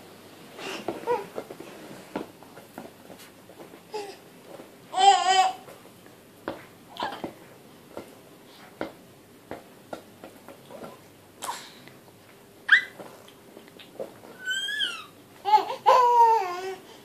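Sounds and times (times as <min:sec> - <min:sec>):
baby babbling: 0:04.9 - 0:05.6, 0:14.4 - 0:16.9
baby squealing: 0:12.7 - 0:13.0, 0:14.3 - 0:16.6.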